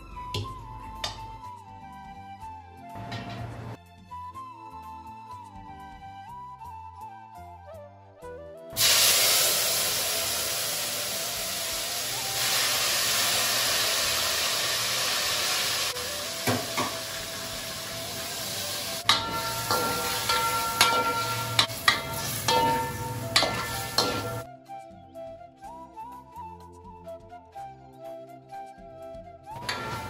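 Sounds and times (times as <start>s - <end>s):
food sizzling in a pan: 8.8s - 24.5s, 29.6s - 30.0s
metal ladle clinking on pan: 19.0s - 24.4s, 29.6s - 30.0s.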